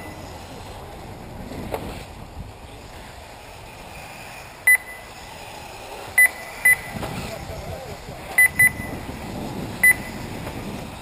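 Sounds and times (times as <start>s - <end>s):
short high electronic beeps: 6.2s - 7.0s, 8.4s - 9.0s.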